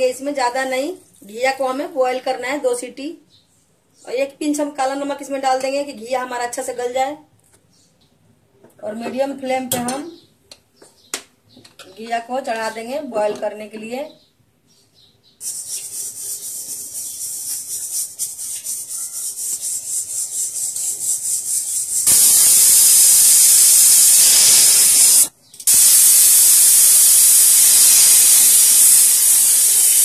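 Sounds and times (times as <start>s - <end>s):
pressure cooker steam whistle hiss: 21.5s - 30.0s.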